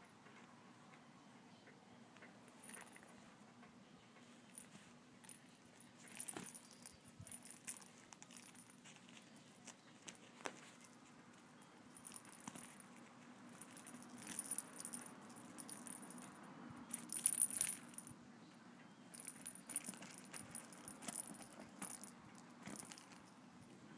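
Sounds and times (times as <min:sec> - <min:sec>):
bell in toy ball jingling: 0:06.0 - 0:08.8, 0:12.0 - 0:12.8, 0:13.6 - 0:18.1, 0:19.2 - 0:22.1, 0:22.7 - 0:23.2.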